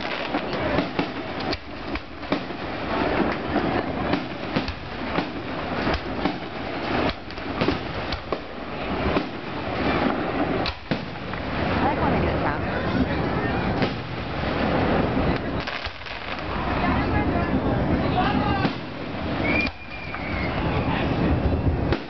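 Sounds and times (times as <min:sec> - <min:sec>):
firework shell bursts banging: 0:00.0 - 0:11.6
constant wash of noise: 0:00.0 - 0:22.0.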